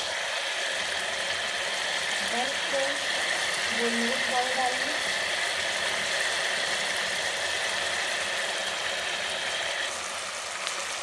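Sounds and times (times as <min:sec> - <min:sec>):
chicken and onions sizzling in oil: 0:00.0 - 0:11.0.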